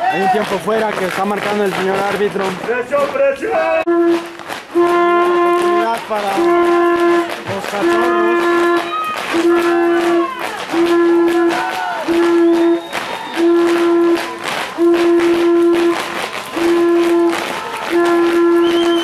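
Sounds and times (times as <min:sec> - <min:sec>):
crowd shouting: 0:00.0 - 0:00.8, 0:03.2 - 0:03.9, 0:05.5 - 0:19.0
horn blasts: 0:03.6 - 0:19.0.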